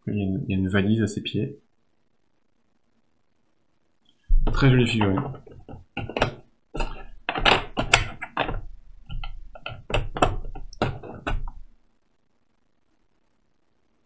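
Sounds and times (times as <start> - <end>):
cardboard and plastic knocking: 4.3 - 11.7.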